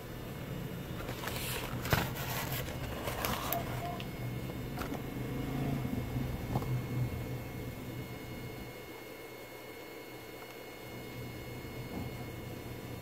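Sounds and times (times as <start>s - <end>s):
steady low hum: 0.0s - 13.0s
rustling and clicks of handling: 1.0s - 4.1s.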